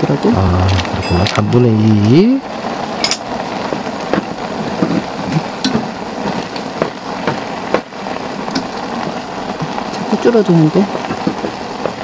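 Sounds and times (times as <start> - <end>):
gas stove hissing: 0.0 - 12.0.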